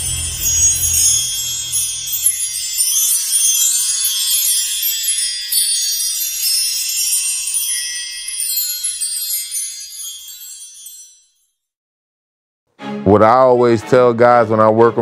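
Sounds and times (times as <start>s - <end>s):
high shimmering chimes: 0.0s - 11.6s.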